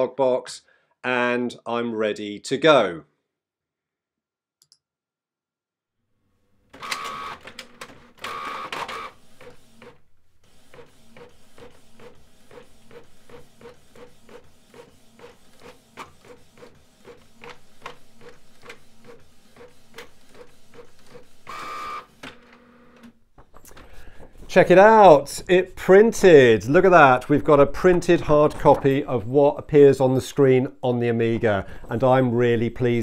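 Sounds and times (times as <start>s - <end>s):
printer feed motor whirring: 6.7s - 23.1s.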